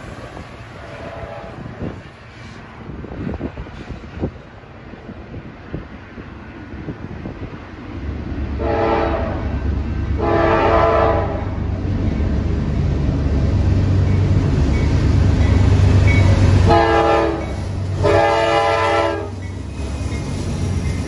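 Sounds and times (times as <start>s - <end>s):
locomotive rumble: 0.0s - 21.0s
train air horn blasts: 0.8s - 1.7s, 8.6s - 9.6s, 10.2s - 11.6s, 16.6s - 19.4s.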